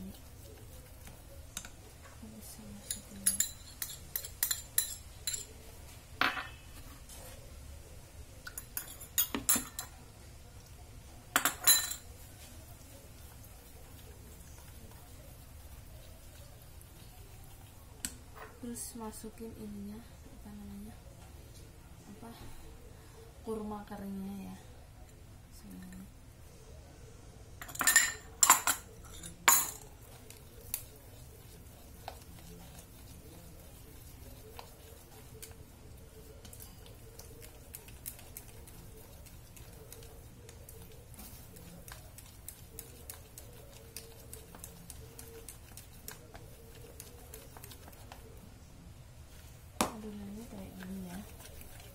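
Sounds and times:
spoon tapping while stirring batter: 0.2s - 2.0s, 8.4s - 10.0s, 18.0s - 18.6s, 27.6s - 35.6s, 36.2s - 48.3s
utensils clinking on metal bowl: 2.7s - 5.6s, 8.5s - 10.0s, 11.4s - 12.1s, 27.6s - 29.9s
kitchenware clattering: 2.8s - 5.6s, 6.2s - 6.8s, 8.5s - 10.0s, 11.3s - 12.1s, 27.6s - 29.9s.

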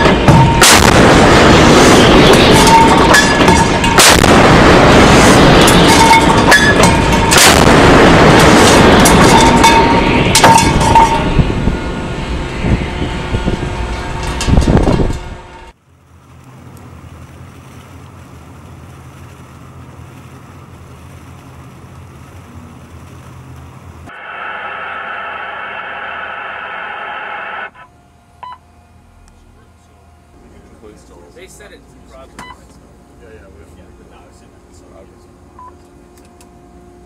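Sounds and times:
loud continuous rush: 0.0s - 15.8s, 24.0s - 27.9s
low steady hum: 0.0s - 37.0s.

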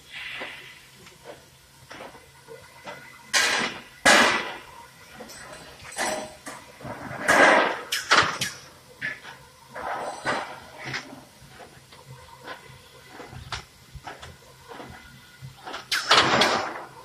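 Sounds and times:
pneumatic hissing bursts: 0.0s - 1.6s, 7.2s - 10.0s, 14.7s - 16.9s.

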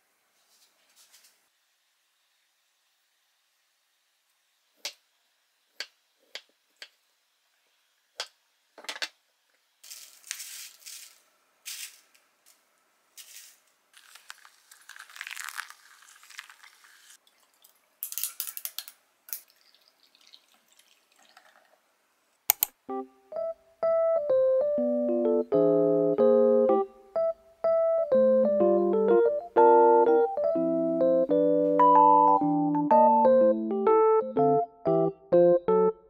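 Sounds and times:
coffee pouring and trickling: 13.2s - 21.8s
liquid poured over ice: 13.2s - 21.8s.

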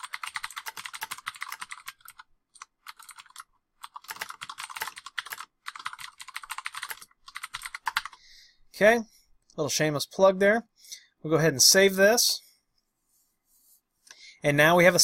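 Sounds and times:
fast typing on keyboard: 0.0s - 8.2s.

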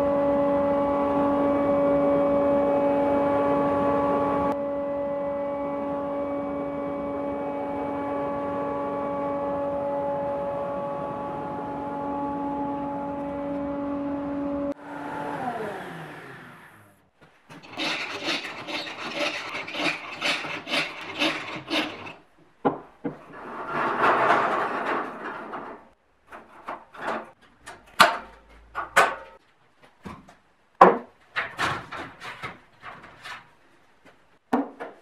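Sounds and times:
dust extractor motor humming: 10.5s - 20.3s
scraping and rubbing strokes: 17.5s - 22.2s.

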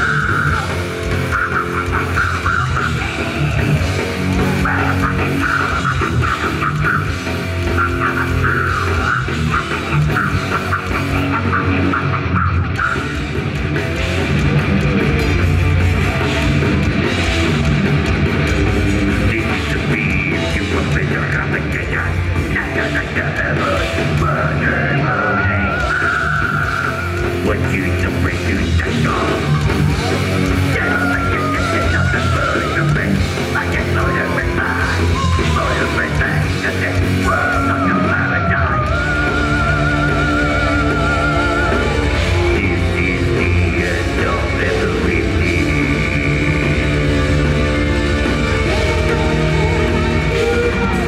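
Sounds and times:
bass guitar: 0.0s - 51.0s
distorted electric guitars: 0.0s - 51.0s
drums: 0.0s - 51.0s
person singing: 19.2s - 51.0s.

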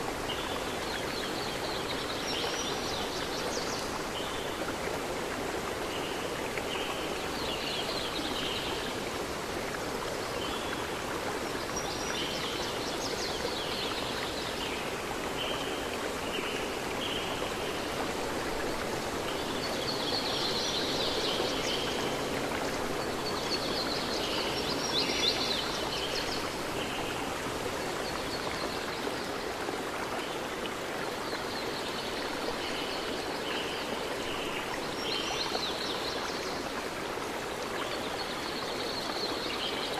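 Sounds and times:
water running like a stream: 0.0s - 39.9s.

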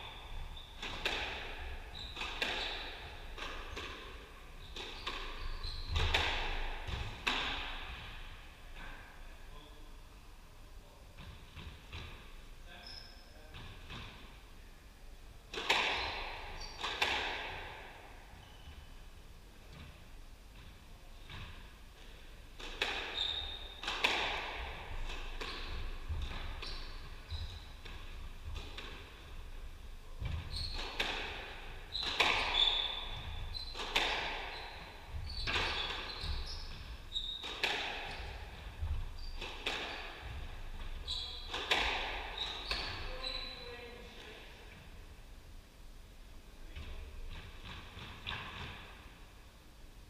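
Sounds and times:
squash ball hits: 0.8s - 8.2s, 15.5s - 17.9s, 22.6s - 29.2s, 30.2s - 43.2s
shoes squeaking on wooden floor: 1.6s - 3.4s, 4.6s - 6.2s, 23.1s - 23.9s, 24.7s - 28.7s, 30.2s - 31.0s, 31.6s - 43.9s.

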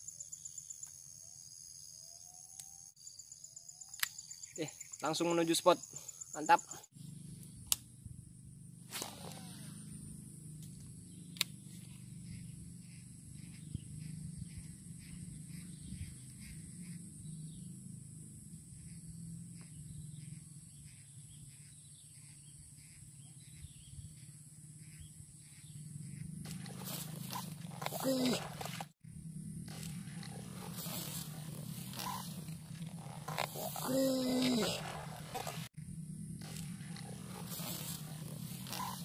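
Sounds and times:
high-pitched insect drone: 8.6s - 39.0s.

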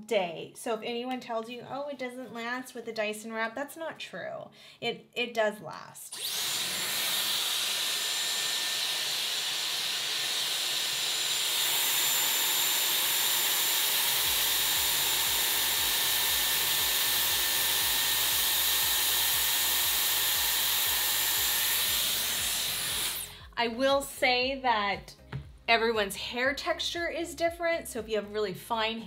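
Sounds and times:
hair styler blowing air: 6.1s - 25.6s
high-pitched motor whine: 6.2s - 23.3s.

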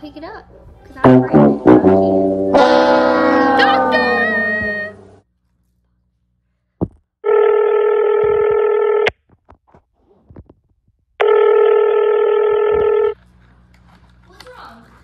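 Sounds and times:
telephone ringing: 7.2s - 9.1s, 11.2s - 13.2s.

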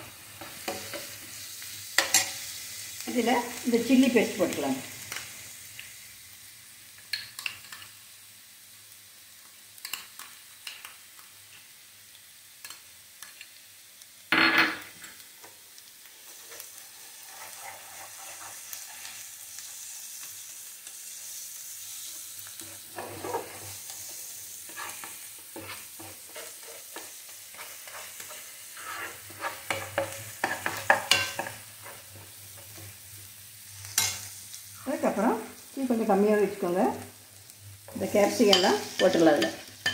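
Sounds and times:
onion sizzling in pan: 0.0s - 39.9s
steel spoon stirring and scraping: 2.0s - 2.4s, 16.2s - 19.2s, 22.6s - 32.9s, 33.9s - 34.3s, 37.9s - 39.9s.

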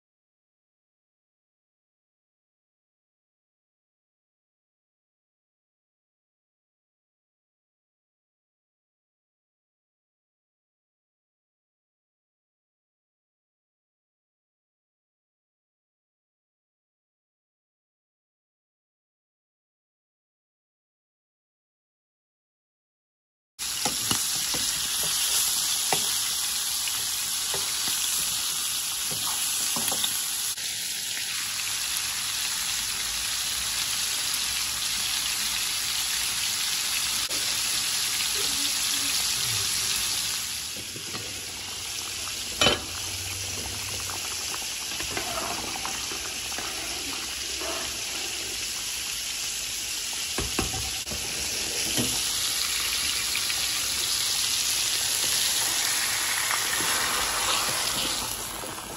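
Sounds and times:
fish sizzling in oil: 23.6s - 58.9s.

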